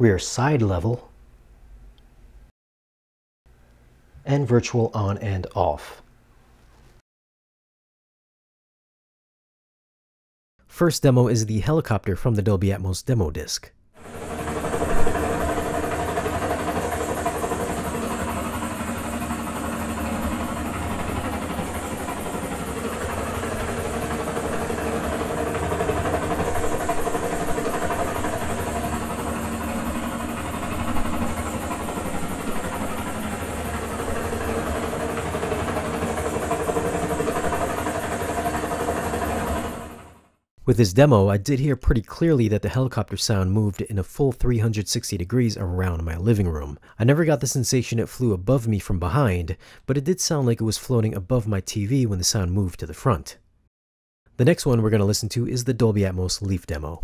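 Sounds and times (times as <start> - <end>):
helicopter engine and rotor: 14.0 - 40.4.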